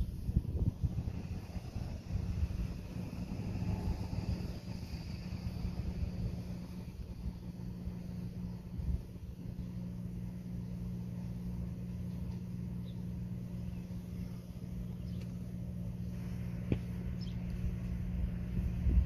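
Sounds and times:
wind rumble on microphone: 0:00.0 - 0:09.8, 0:15.9 - 0:19.0
distant train locomotive drone: 0:00.0 - 0:19.0.

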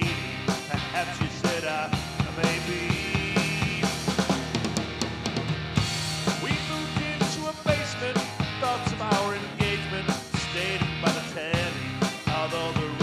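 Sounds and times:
drum kit beat: 0:00.0 - 0:13.0
rock band music: 0:00.0 - 0:13.0.

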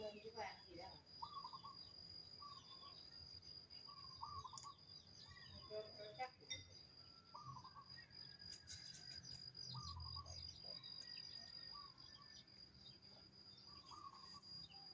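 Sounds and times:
bird chirps: 0:00.0 - 0:14.9
insect trill: 0:00.0 - 0:14.9.

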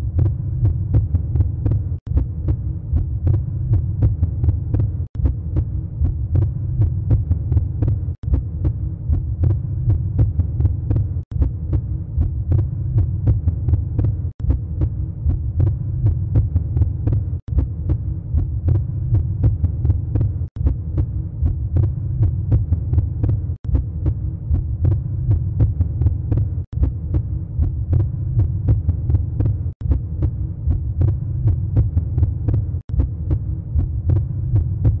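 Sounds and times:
heartbeat pulsing: 0:00.0 - 0:35.0.

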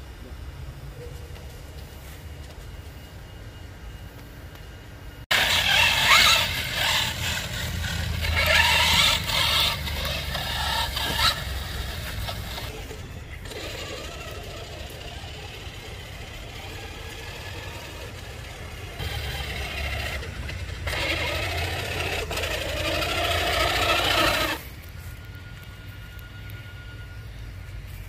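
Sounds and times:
toy truck motor and gears whining: 0:05.3 - 0:28.0.

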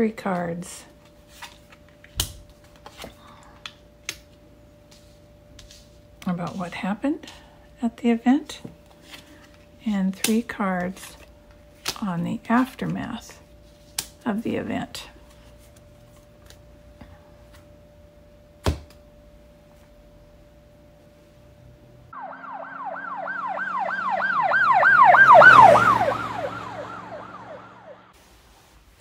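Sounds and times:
siren yelping: 0:22.1 - 0:28.2.

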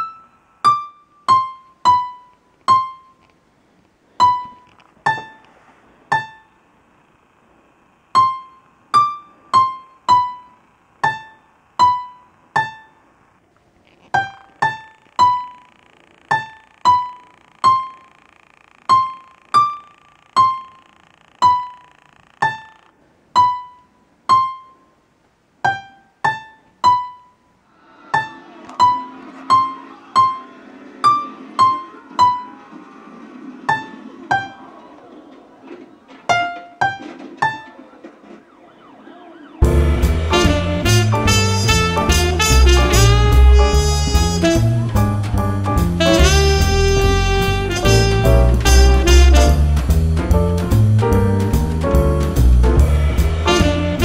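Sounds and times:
slow piano melody: 0:00.0 - 0:03.2, 0:18.9 - 0:25.0, 0:25.6 - 0:35.1, 0:36.2 - 0:54.0
rustling noise: 0:02.5 - 0:06.1, 0:31.0 - 0:39.0.

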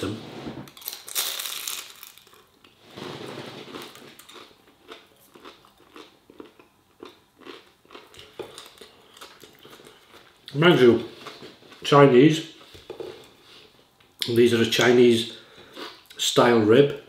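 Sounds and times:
crunching and chewing food: 0:00.7 - 0:11.9.

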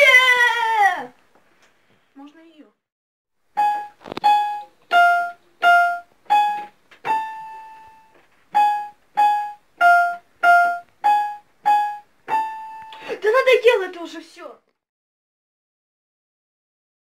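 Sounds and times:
electronic keyboard melody: 0:03.6 - 0:13.0.

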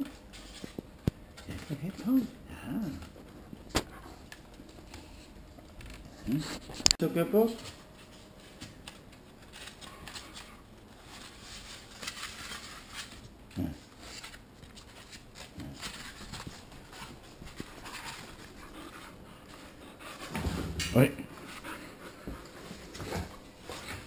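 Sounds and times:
paper pages rustling: 0:03.6 - 0:18.6.

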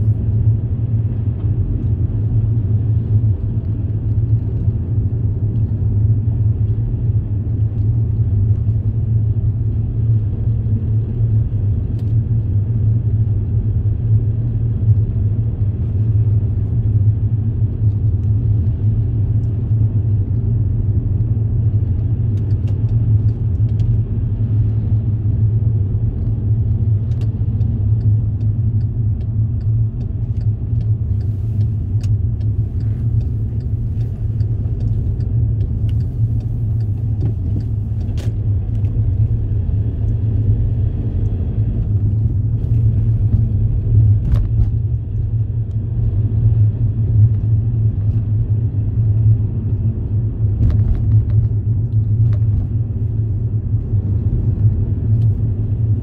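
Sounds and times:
car interior road rumble: 0:00.0 - 0:56.0.

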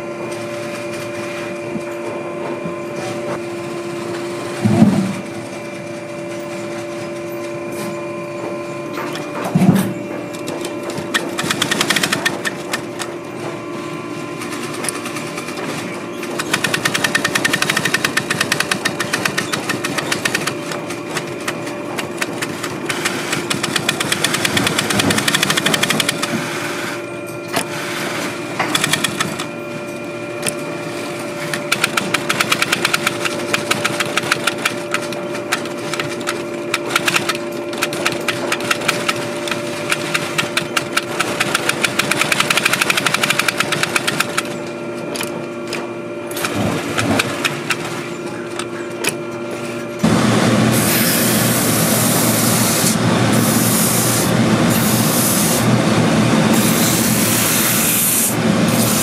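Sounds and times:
sewing machine hum: 0:10.3 - 0:27.0, 0:27.6 - 0:29.6, 0:30.4 - 0:44.7, 0:46.3 - 0:48.7, 0:50.0 - 0:59.0
sewing machine needle ticking: 0:16.4 - 0:20.5, 0:39.9 - 0:44.4.

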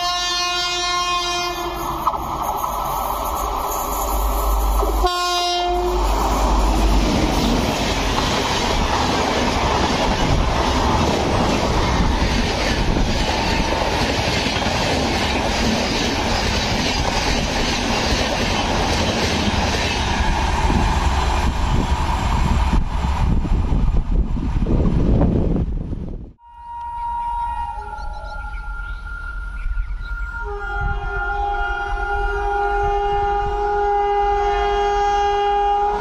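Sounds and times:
train horn blast: 0:00.0 - 0:02.0, 0:04.8 - 0:07.5, 0:26.4 - 0:36.0
train wheels rushing on rails: 0:01.0 - 0:25.7.

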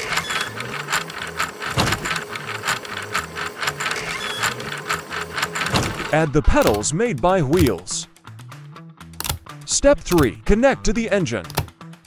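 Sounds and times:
plastic gears clicking: 0:00.0 - 0:06.8
soft background music: 0:06.1 - 0:12.0.

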